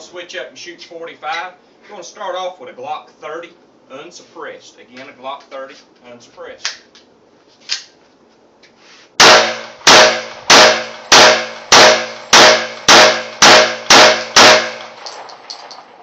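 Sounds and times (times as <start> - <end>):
pistol shots: 9.2 - 15.9.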